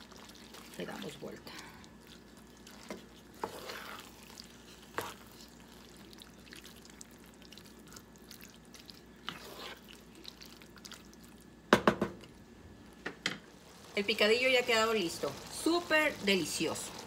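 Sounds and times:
spatula stirring thick stew: 0.0 - 11.2.

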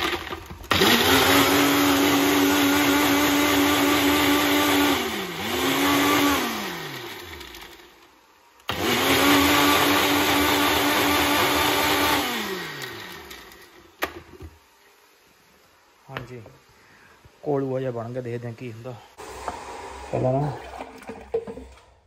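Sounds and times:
blender motor running: 0.0 - 8.0, 8.6 - 13.8, 19.2 - 20.7.

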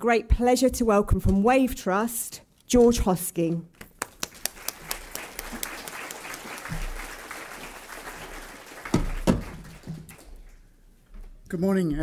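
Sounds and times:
audience applause: 4.1 - 10.7.

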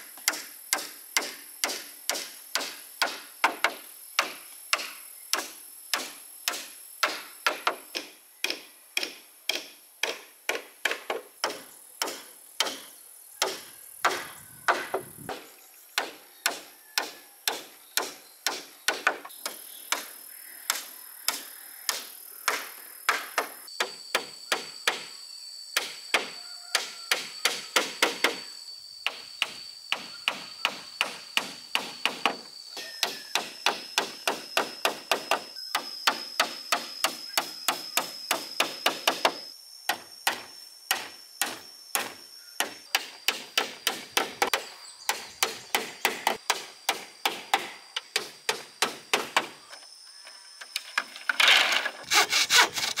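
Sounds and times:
hammer driving nails into bamboo: 51.4 - 53.0.

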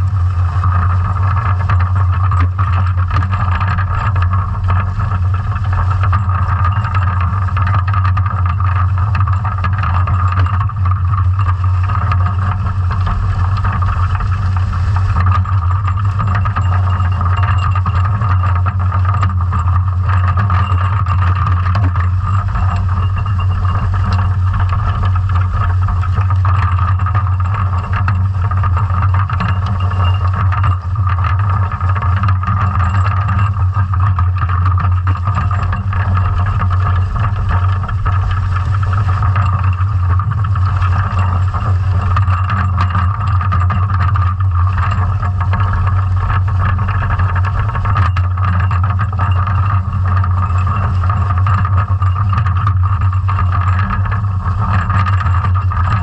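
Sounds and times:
loud low underwater drone: 0.0 - 51.2
faint higher hum: 11.2 - 32.0.

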